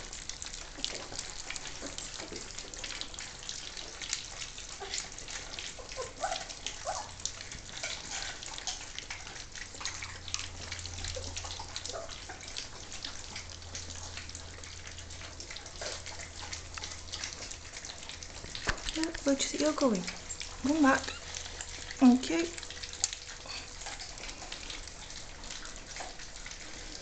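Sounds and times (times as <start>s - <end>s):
puppies lapping and smacking: 0.0s - 27.0s
puppy squeaks: 20.3s - 21.4s.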